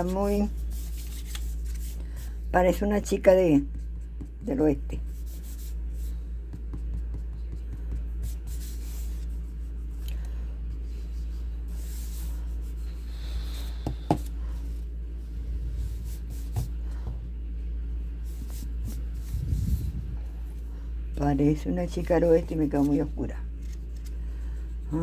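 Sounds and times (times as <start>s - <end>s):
steady low hum: 0.0s - 25.0s
pencil scratching on paper: 3.8s - 9.3s.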